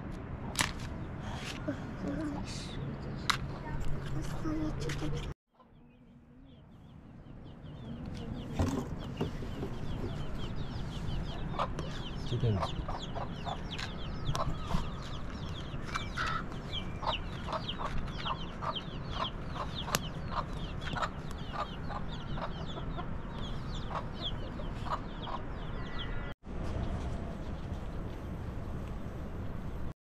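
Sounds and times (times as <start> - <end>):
small birds chirping: 0.9 - 26.3
chickens clucking: 8.0 - 15.2, 15.8 - 25.6.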